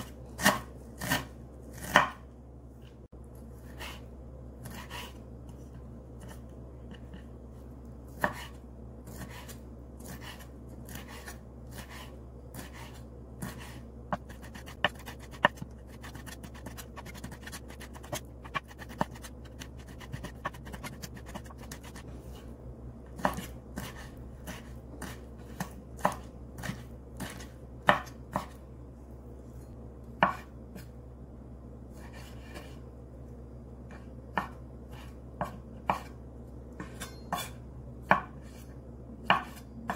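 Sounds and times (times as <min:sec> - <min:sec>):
knife chopping on wooden board: 0:00.4 - 0:02.2, 0:08.2 - 0:22.0, 0:23.2 - 0:28.6, 0:30.2 - 0:30.5, 0:34.3 - 0:36.2, 0:36.8 - 0:38.4, 0:39.2 - 0:39.9.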